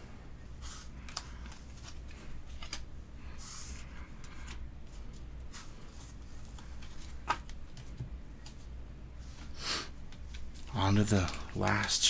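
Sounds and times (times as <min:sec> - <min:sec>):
low steady hum: 0:00.0 - 0:12.0
cards rustling and sliding: 0:00.5 - 0:12.0.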